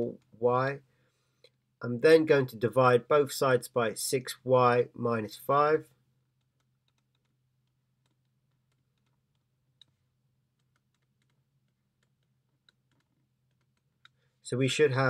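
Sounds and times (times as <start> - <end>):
stylus tapping on tablet: 6.4 - 14.2.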